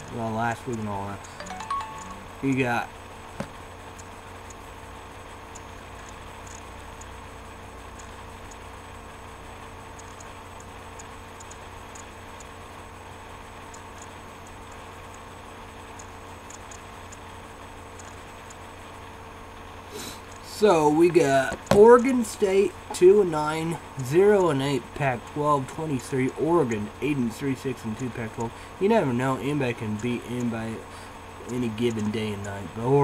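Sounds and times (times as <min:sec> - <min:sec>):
faint small ticks: 0:00.0 - 0:02.1, 0:03.8 - 0:19.2, 0:29.8 - 0:32.7
low electrical hum: 0:00.0 - 0:33.0.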